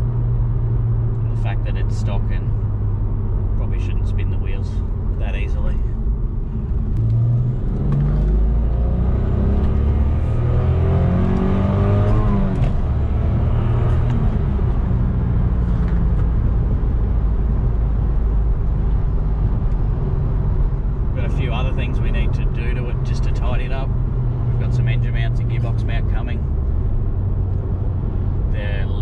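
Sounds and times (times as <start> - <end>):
car engine revving: 0.0 - 29.0
road noise: 0.0 - 29.0.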